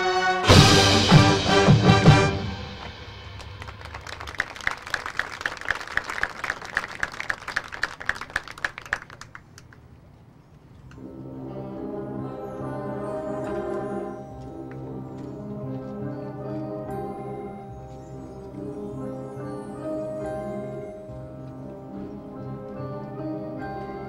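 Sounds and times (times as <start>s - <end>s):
brass playing low chords: 0.0s - 3.5s
marching band chord: 0.0s - 4.5s.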